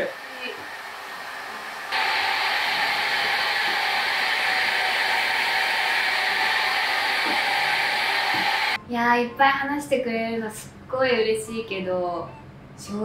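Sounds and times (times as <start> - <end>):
hair dryer blowing: 0.0 - 8.8.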